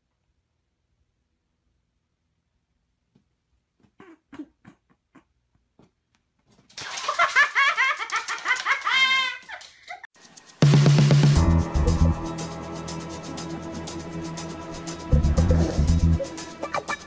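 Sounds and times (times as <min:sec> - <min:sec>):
person laughing loudly: 0:06.8 - 0:10.0, 0:16.6 - 0:17.0.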